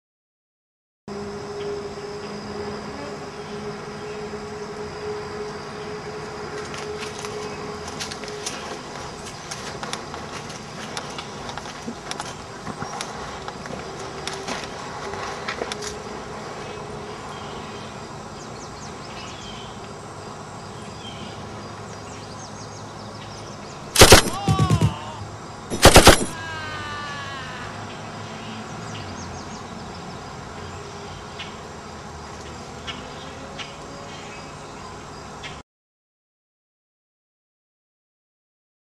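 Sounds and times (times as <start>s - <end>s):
automatic rifle fire: 24.0s - 25.1s, 25.7s - 26.4s.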